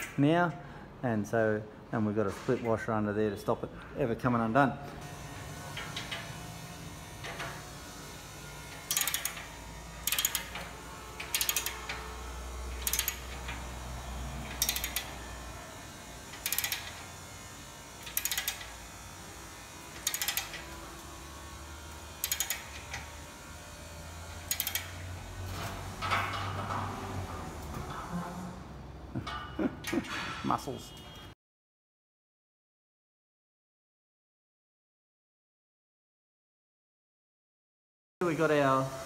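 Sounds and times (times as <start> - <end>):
socket ratchet clicking: 8.7 - 13.7, 14.5 - 15.2, 16.3 - 17.1, 18.0 - 18.8, 20.0 - 20.8, 22.2 - 23.1, 24.4 - 25.0.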